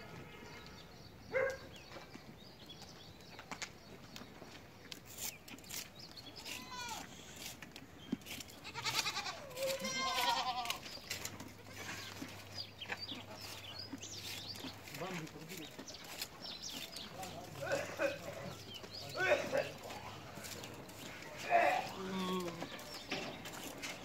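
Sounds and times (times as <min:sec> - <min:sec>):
goats bleating: 0:06.4 - 0:07.2, 0:08.5 - 0:10.8, 0:11.5 - 0:12.4.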